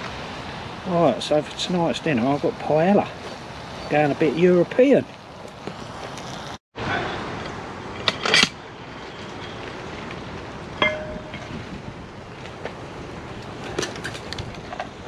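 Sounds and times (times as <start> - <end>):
campfire crackling: 5.1 - 6.6
metal clink ringing: 10.8 - 11.5.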